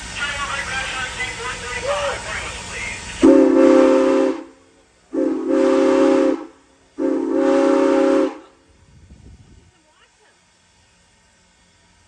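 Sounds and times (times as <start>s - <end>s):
steam locomotive whistle blasts: 3.2s - 8.6s.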